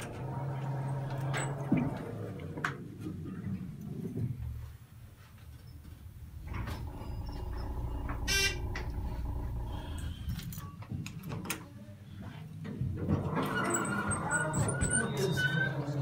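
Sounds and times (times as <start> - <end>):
elevator hum: 0.0 - 2.6, 6.4 - 10.4.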